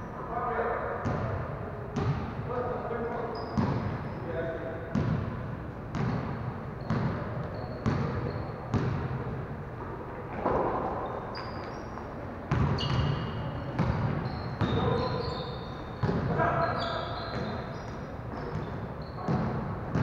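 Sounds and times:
basketballs bouncing on gym floor: 1.0s - 2.4s, 3.6s - 4.0s, 4.9s - 9.4s, 12.5s - 20.0s
short high squeaks: 11.0s - 12.0s, 12.7s - 13.4s, 14.2s - 15.9s, 16.6s - 18.0s.

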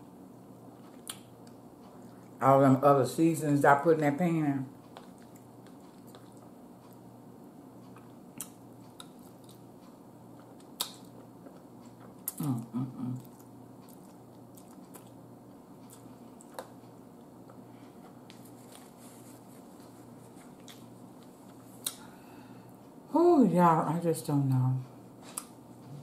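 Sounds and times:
quiet chewing: 0.5s - 2.4s, 4.8s - 22.2s, 25.2s - 26.0s
person humming: 12.4s - 13.3s.

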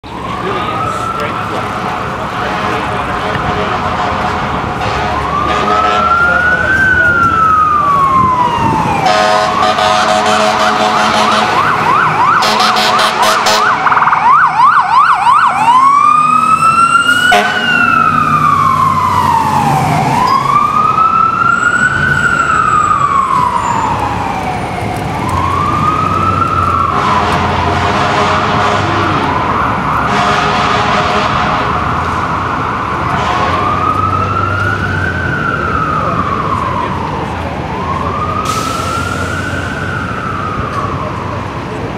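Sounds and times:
fire truck siren wailing and yelping: 0.0s - 41.9s
air horn blasts: 2.4s - 6.2s, 9.0s - 11.7s, 12.4s - 13.8s, 17.2s - 18.0s, 26.9s - 29.3s, 30.1s - 31.8s, 33.1s - 33.8s.

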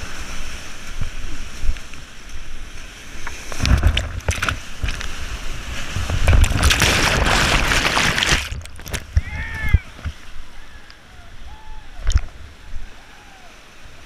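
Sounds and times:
paddle strokes and splashes: 0.0s - 14.0s
whitewater rapids rushing: 4.7s - 14.0s.

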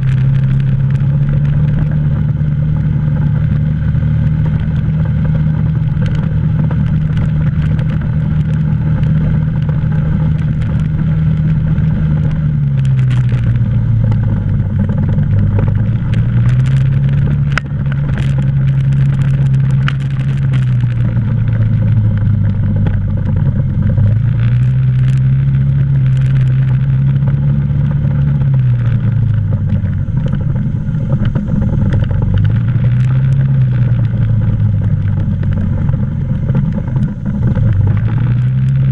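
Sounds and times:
atv engine running: 0.0s - 38.9s
clicks and rattles over bumps: 0.0s - 38.9s.

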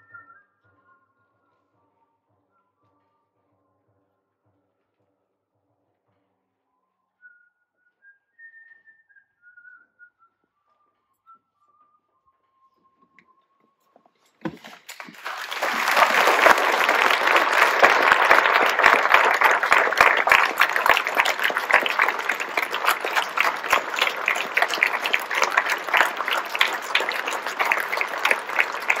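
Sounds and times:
audience applauding: 14.4s - 29.0s.

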